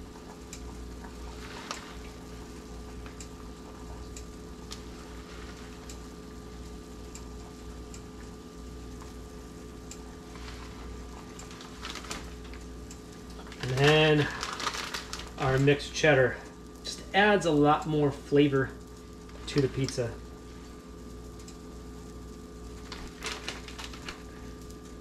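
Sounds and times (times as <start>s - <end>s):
low electrical hum: 0.0s - 25.0s
faint light ticks: 21.4s - 21.6s.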